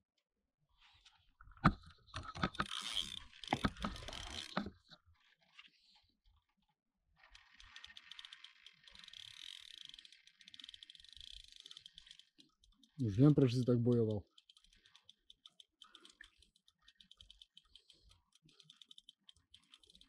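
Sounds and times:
fast mechanical clicking: 0:02.2 - 0:04.9, 0:07.2 - 0:20.0.

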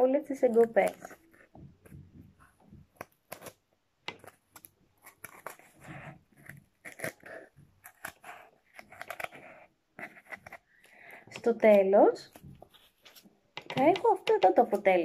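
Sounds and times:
yarn scratching through cardboard: 0:00.4 - 0:10.8.

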